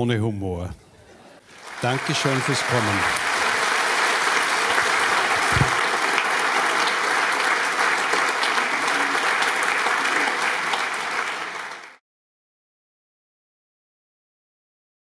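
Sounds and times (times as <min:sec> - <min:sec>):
audience applauding: 0:01.4 - 0:12.0.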